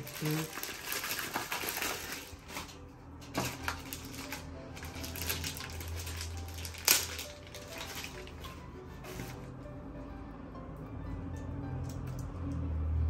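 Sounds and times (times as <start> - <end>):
plastic bags rustling: 0.0 - 9.5.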